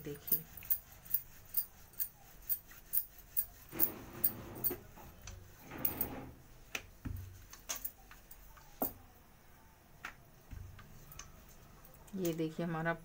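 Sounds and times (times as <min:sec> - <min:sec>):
rolling pin rolling dough: 0:00.0 - 0:09.2, 0:10.0 - 0:12.2.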